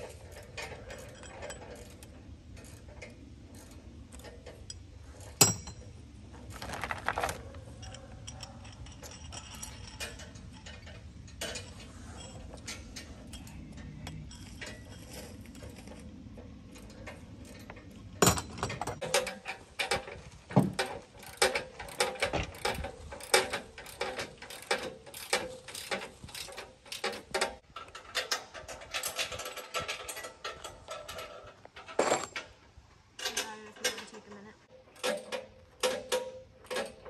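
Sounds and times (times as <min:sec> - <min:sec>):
light clinks of hardware: 0:07.6 - 0:32.5.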